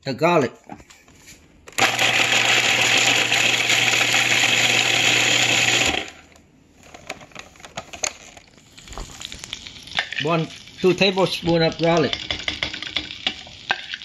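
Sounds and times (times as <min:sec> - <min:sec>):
food processor chopping: 0:01.7 - 0:06.2.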